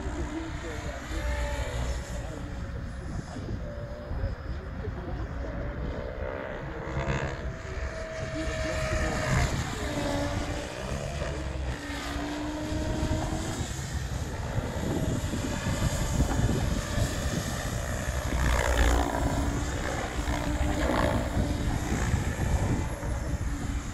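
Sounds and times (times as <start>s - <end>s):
model helicopter rotor whine: 0.0s - 23.9s.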